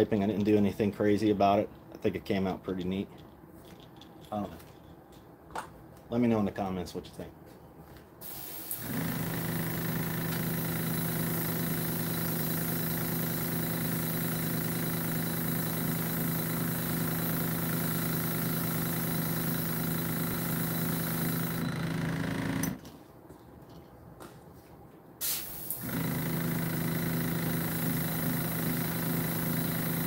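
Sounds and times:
compressor humming: 8.2s - 22.8s, 25.2s - 30.0s.

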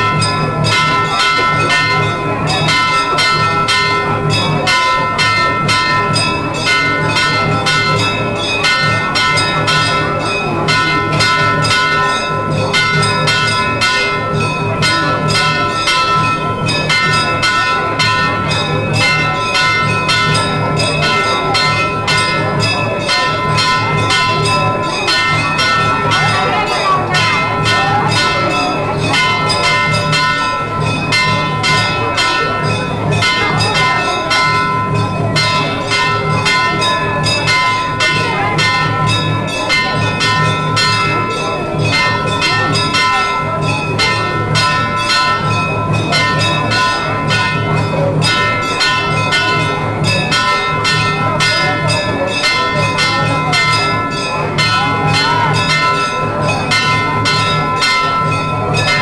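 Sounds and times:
temple bells ringing rapidly: 0.0s - 59.0s.

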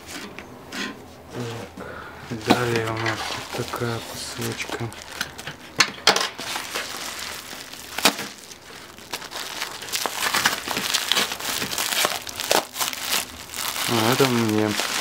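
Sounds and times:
plastic wrapping crinkling: 2.4s - 15.0s
paper mailer tearing and crumpling: 2.6s - 5.4s, 6.4s - 15.0s.

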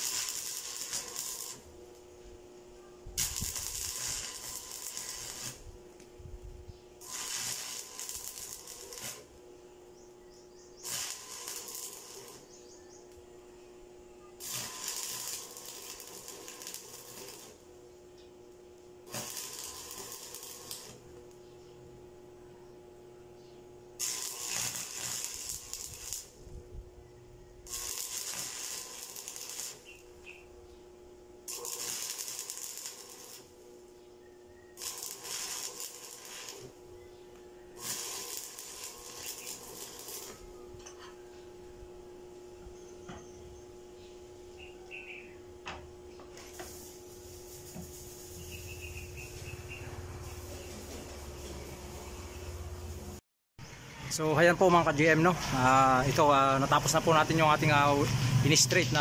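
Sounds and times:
welding arc crackling: 0.0s - 2.2s, 3.2s - 6.2s, 7.0s - 10.0s, 10.6s - 13.2s, 14.4s - 17.8s, 18.7s - 21.4s, 24.0s - 26.6s, 27.6s - 30.6s, 31.4s - 34.0s, 34.7s - 40.6s, 46.3s - 59.0s
steady hum: 0.0s - 59.0s.

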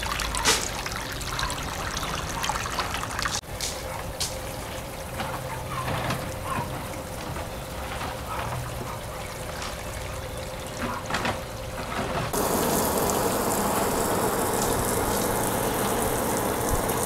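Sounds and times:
hose spraying water on pebbles: 0.0s - 1.1s, 12.3s - 17.0s
water splashing: 0.0s - 3.4s, 4.3s - 17.0s.

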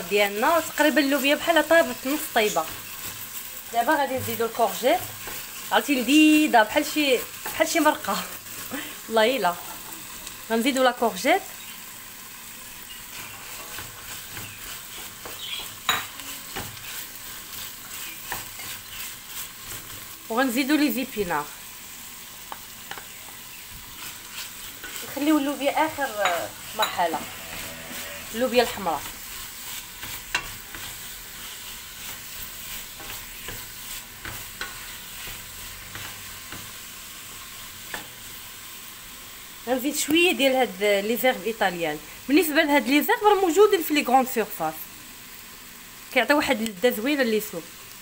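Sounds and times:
vegetables sizzling in oil: 0.0s - 48.0s
wooden spoon scraping a pot: 0.3s - 8.7s, 13.0s - 20.2s, 22.5s - 36.8s.

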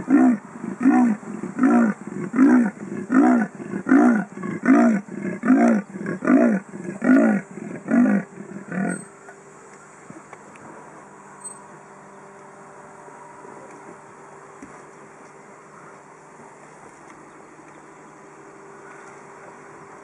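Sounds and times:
leopard rasping grunts: 0.0s - 9.1s
faint low hum: 0.0s - 20.0s.

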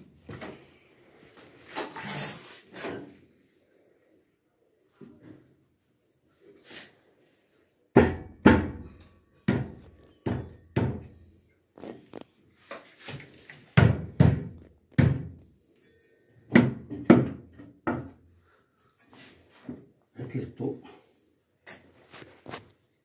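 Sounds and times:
hollow knocks of washing machine tub: 13.8s - 15.4s, 16.5s - 18.2s.

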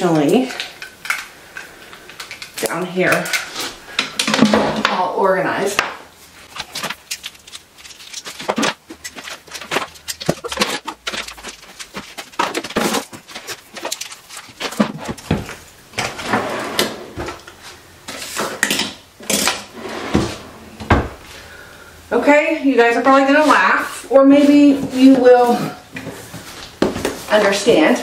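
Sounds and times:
cords rustling: 6.2s - 16.6s.

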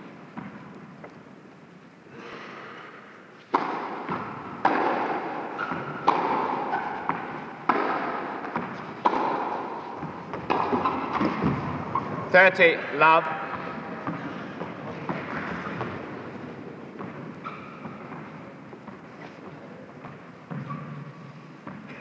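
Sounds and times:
racket hitting tennis ball: 3.4s - 12.3s, 13.4s - 21.0s.

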